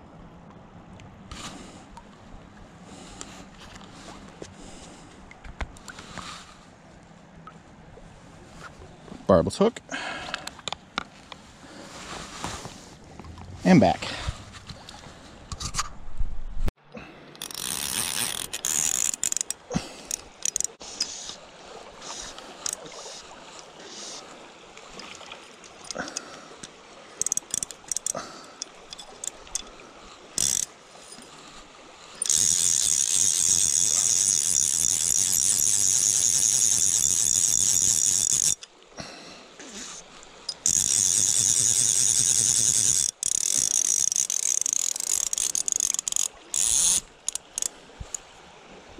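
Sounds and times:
fly reel drag ratcheting: 17.3 - 21.4, 22.0 - 24.2, 27.2 - 29.7, 30.3 - 30.7, 32.0 - 38.7, 39.9 - 48.2.

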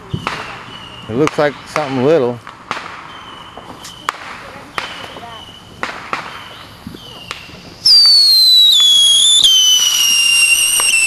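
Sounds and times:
firework shrill whistle: 6.2 - 11.0.

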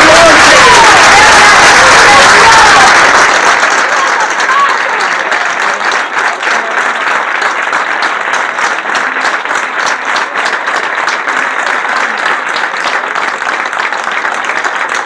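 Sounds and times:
crowd applauding: 0.0 - 15.0.

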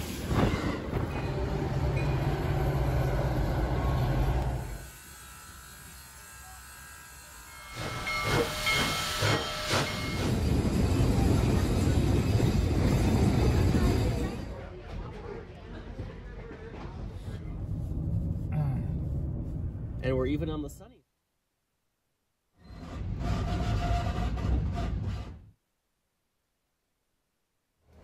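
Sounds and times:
train rushing past: 0.0 - 4.7, 7.5 - 15.0
steam locomotive exhaust and hiss: 0.0 - 14.4
train whistle: 6.1 - 10.3.

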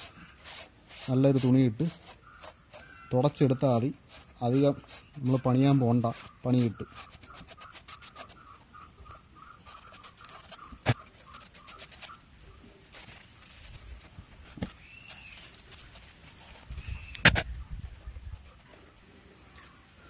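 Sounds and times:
cloth rubbing plastic: 4.0 - 8.4
sharp click: 17.1 - 17.5.

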